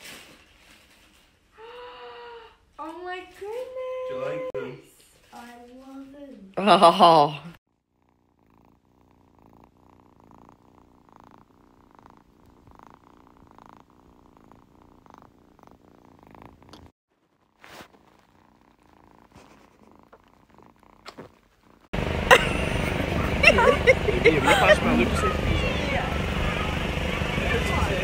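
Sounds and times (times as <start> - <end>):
kitten purring: 7.7 - 28.0.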